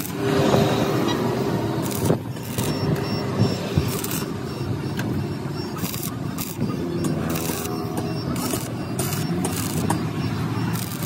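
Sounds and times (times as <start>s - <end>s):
vehicle engine running: 0.0s - 11.0s
high beeps: 0.1s - 11.0s.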